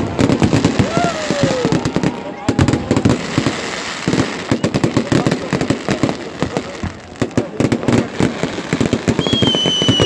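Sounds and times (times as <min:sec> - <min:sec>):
fireworks bangs and crackles: 0:00.0 - 0:10.0
high falling whistle: 0:09.2 - 0:10.0.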